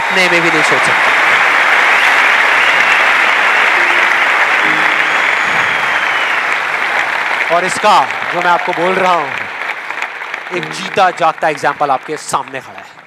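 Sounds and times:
large audience applauding: 0.0 - 13.0.

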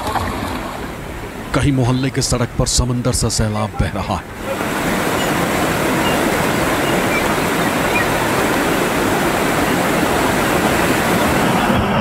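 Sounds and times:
floodwater rushing: 0.0 - 12.0.

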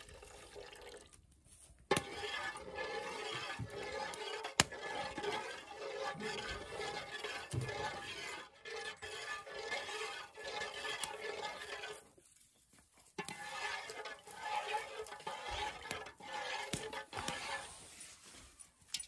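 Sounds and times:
spoon stirring liquid in metal pot: 1.9 - 12.2, 13.2 - 17.8.

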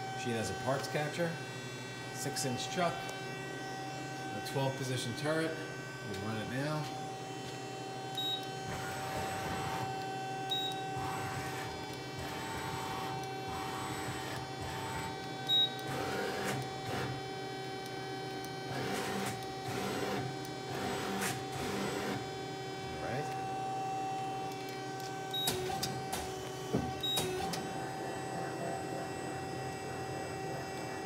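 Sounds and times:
lathe electrical hum: 0.0 - 31.0
servo motors whining: 6.9 - 17.2.

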